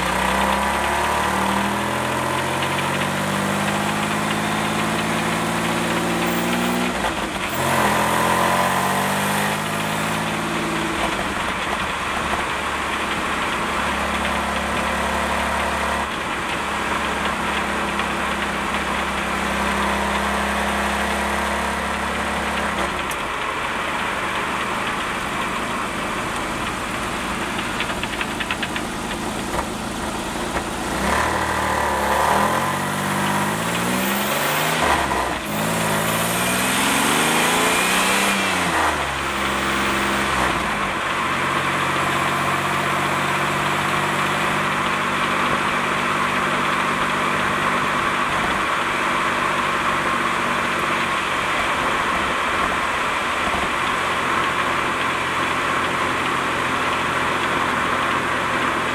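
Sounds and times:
car engine revving: 0:00.0 - 0:58.9
transmission rattle: 0:22.0 - 0:31.5.

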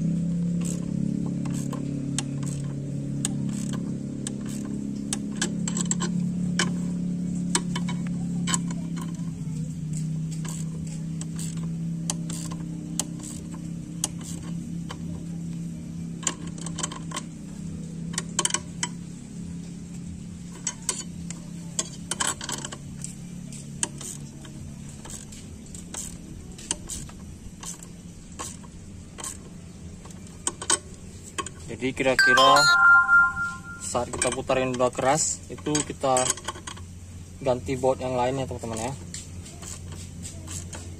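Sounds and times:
ratcheting spanner clicking: 0:10.3 - 0:14.5.

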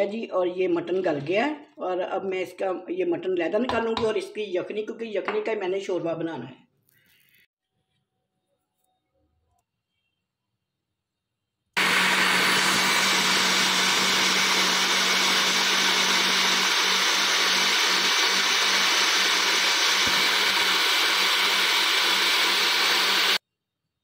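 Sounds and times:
blender running: 0:11.8 - 0:23.4.

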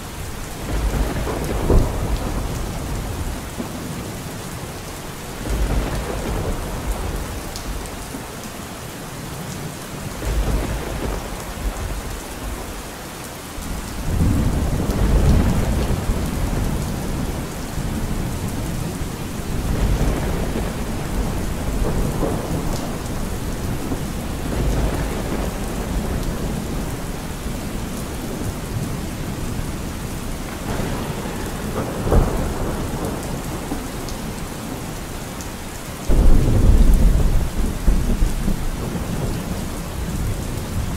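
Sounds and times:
steady rain falling: 0:00.0 - 0:40.9
sharp thunderclap: 0:00.6 - 0:03.9, 0:05.4 - 0:07.8, 0:10.1 - 0:12.6, 0:13.7 - 0:18.9, 0:19.5 - 0:27.1, 0:30.5 - 0:34.9, 0:36.1 - 0:40.9
rolling thunder: 0:00.6 - 0:04.3, 0:05.3 - 0:08.2, 0:10.0 - 0:12.8, 0:13.6 - 0:35.4, 0:36.1 - 0:40.9.

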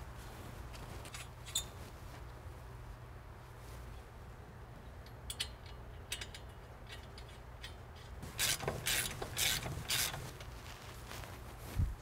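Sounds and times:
hand ratchet strokes: 0:05.3 - 0:10.5.

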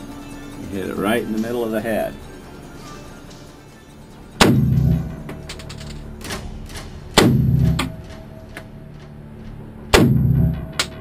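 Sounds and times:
rifle shots with booming tail: 0:04.4 - 0:05.4, 0:06.2 - 0:08.5, 0:09.9 - 0:10.9.

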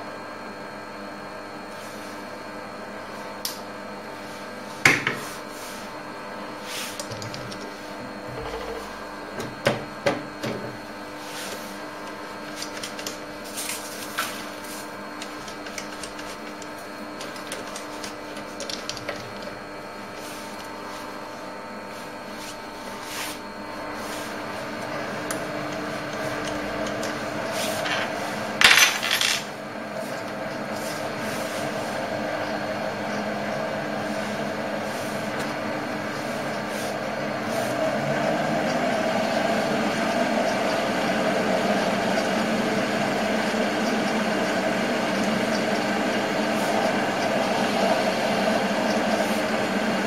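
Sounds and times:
lathe running: 0:10.3 - 0:50.0.

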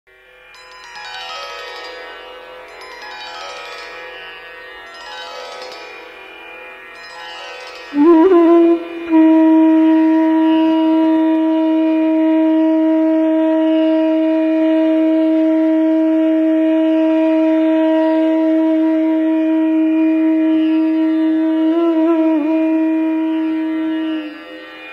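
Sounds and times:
conch shell blown: 0:07.9 - 0:24.9.

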